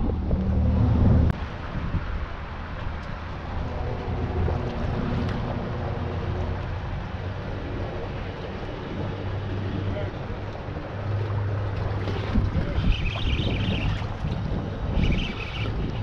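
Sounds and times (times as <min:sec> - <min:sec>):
loud low rumble: 0:00.0 - 0:01.4
motorboat engine humming: 0:00.0 - 0:16.0
wind and water noise: 0:00.0 - 0:16.0.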